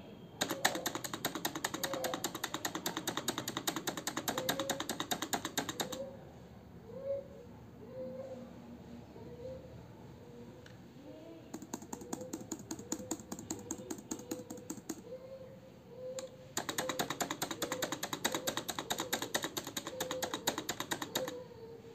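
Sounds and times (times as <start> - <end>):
keyboard space bar clacking: 0.4 - 6.0, 11.6 - 15.1, 16.2 - 21.4
laptop space bar clicking: 0.4 - 6.0, 11.6 - 15.1, 16.2 - 21.4.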